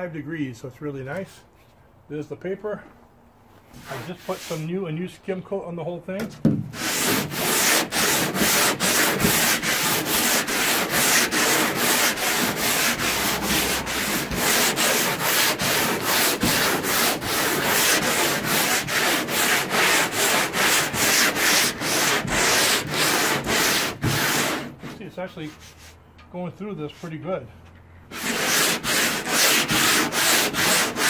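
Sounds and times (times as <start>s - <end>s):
sandpaper rasping on hull: 3.8s - 4.7s, 6.8s - 26.0s, 28.1s - 31.0s.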